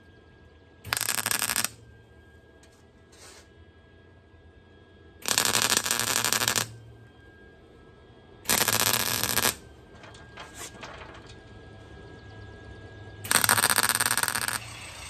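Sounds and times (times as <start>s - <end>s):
welder arcing and crackling: 0.9s - 1.8s, 5.2s - 6.8s, 8.5s - 11.3s, 13.3s - 15.0s.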